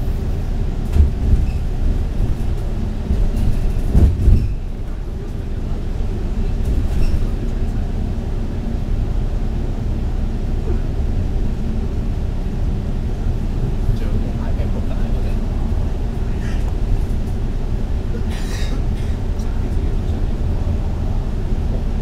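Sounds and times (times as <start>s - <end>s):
bus engine and tyres rumbling: 0.0s - 22.0s
heavy bump: 0.9s - 4.7s.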